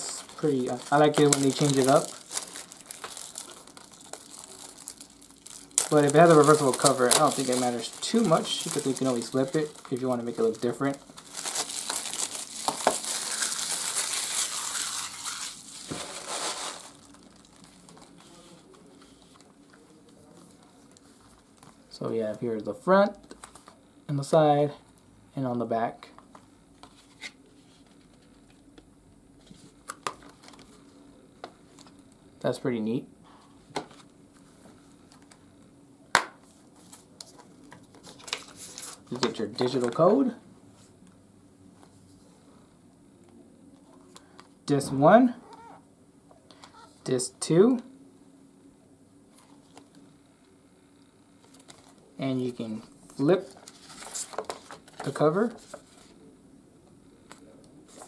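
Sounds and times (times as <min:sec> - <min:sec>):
plastic packaging crinkling: 0:00.0 - 0:19.9.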